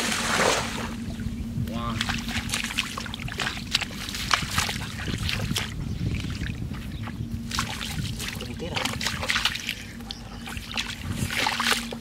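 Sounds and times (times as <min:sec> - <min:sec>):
hands splashing in muddy water: 0:07.5 - 0:12.0.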